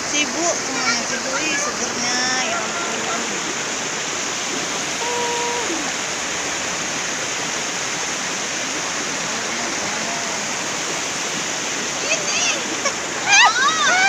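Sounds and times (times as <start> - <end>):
river rushing over boulders: 0.0 - 14.0.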